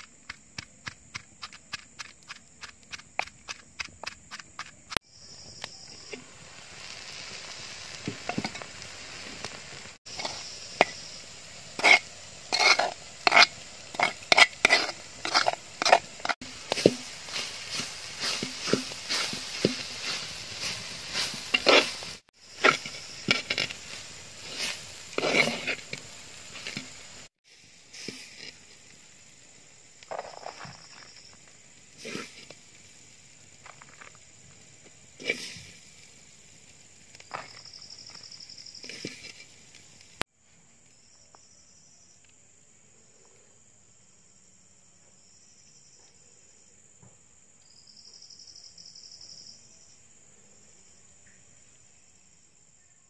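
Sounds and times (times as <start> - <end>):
frying hiss: 0.0 - 42.5
spoon scraping in clay pot: 10.1 - 11.1, 11.8 - 27.0, 38.8 - 39.6.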